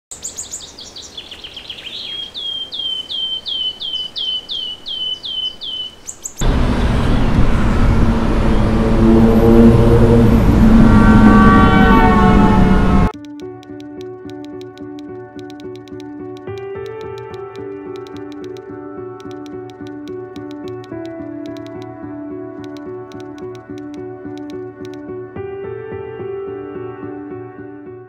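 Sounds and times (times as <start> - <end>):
songbird chirping: 0.1 - 7.5
car horns blaring: 6.4 - 13.2
dense city traffic: 6.4 - 13.2.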